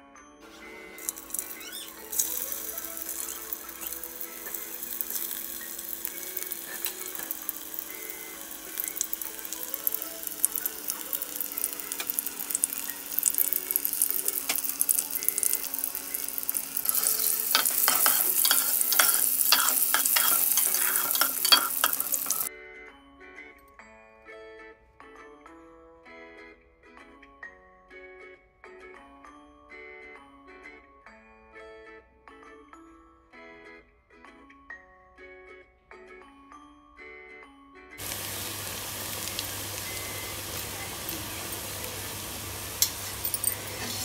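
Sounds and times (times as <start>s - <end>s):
food frying in hot oil: 0.6s - 22.5s, 38.0s - 44.0s.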